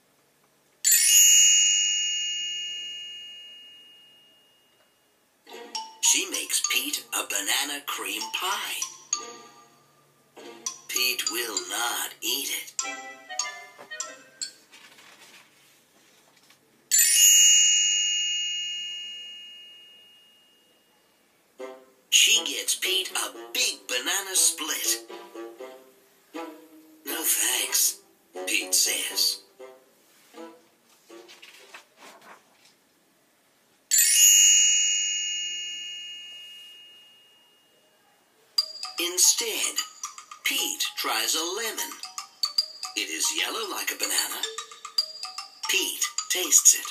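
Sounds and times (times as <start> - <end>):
high bell chime: 0.8 - 5.1, 16.9 - 21.2, 33.9 - 37.9, 38.6 - 40.5, 41.9 - 43.4, 44.4 - 46.9
book page turning: 14.7 - 16.6, 30.9 - 32.8.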